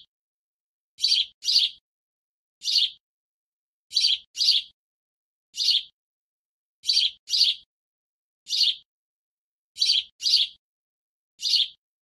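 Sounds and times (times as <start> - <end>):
small bird chirping: 1.0 - 1.8, 2.6 - 3.0, 3.9 - 4.8, 5.6 - 6.0, 6.8 - 7.7, 8.4 - 8.9, 9.8 - 10.6, 11.4 - 11.8.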